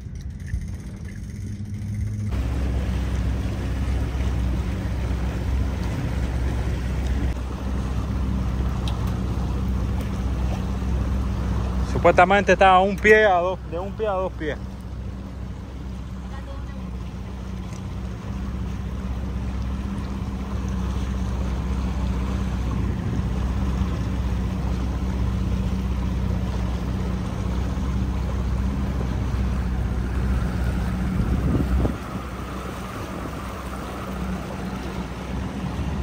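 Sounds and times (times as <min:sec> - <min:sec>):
outboard motor droning: 0:00.0 - 0:36.0
water noise: 0:00.0 - 0:36.0
wind on microphone: 0:29.8 - 0:34.1.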